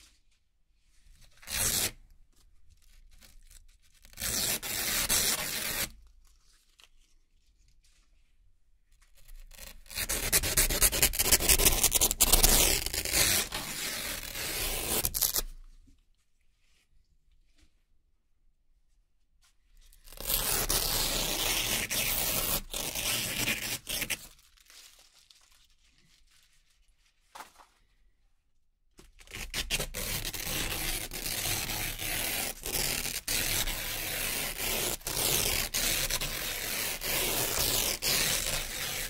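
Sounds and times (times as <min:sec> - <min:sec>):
velcro ripping: 0:03.2 - 0:06.0, 0:09.2 - 0:15.6, 0:20.0 - 0:26.1, 0:29.2 - 0:39.0.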